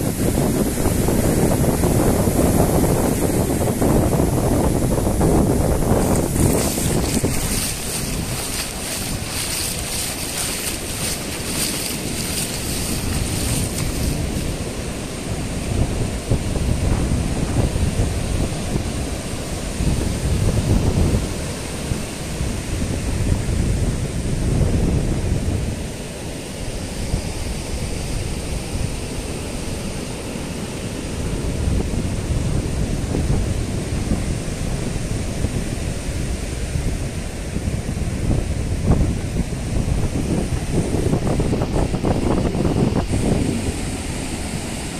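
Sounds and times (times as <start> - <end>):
surf breaking on beach: 0.0 - 23.8
waves washing over sand: 0.0 - 44.9
wind rumble on microphone: 0.0 - 44.9.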